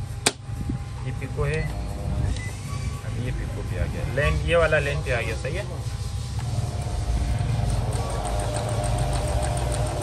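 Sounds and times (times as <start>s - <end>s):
sewing machine running: 7.6s - 10.0s.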